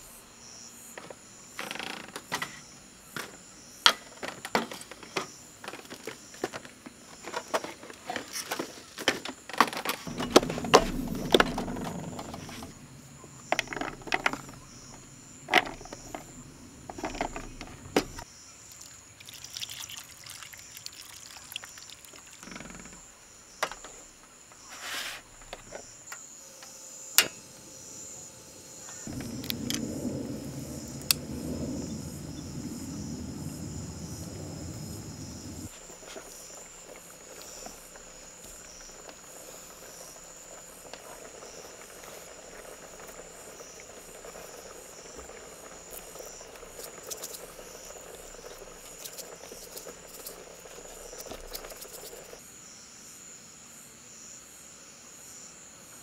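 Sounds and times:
steady rushing noise: 10.0s - 18.3s, 28.0s - 35.7s.

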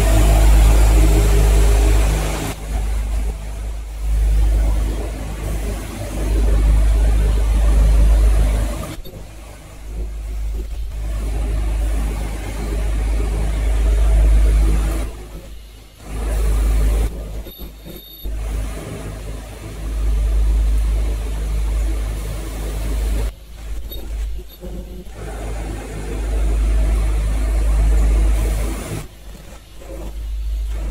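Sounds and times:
deep rumble: 0.0s - 15.2s
machine humming: 0.0s - 30.9s.

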